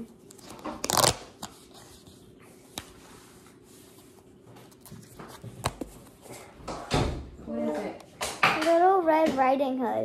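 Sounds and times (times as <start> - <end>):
cardboard ripping: 0.4 - 1.6.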